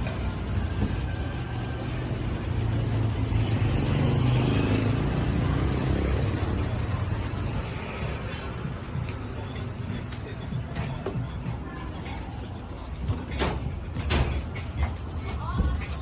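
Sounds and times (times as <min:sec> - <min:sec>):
vehicle engine rumbling past: 0:00.0 - 0:09.0.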